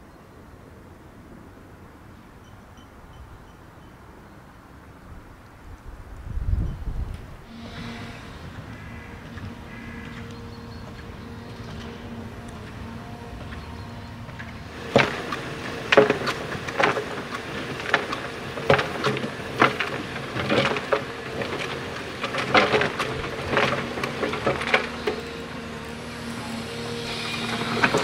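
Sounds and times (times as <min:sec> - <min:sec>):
excavator engine running: 0:07.4 - 0:28.0
stones knocking in bucket: 0:14.9 - 0:25.1.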